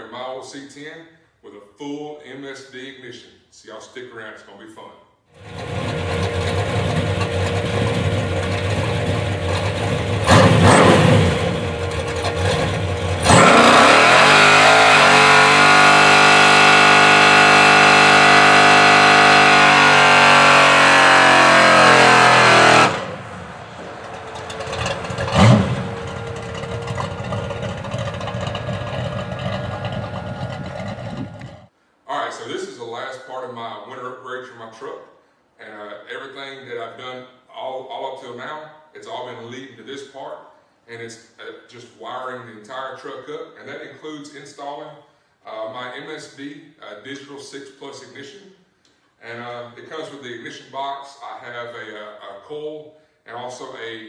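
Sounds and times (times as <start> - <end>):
engine revving: 5.4 - 31.7.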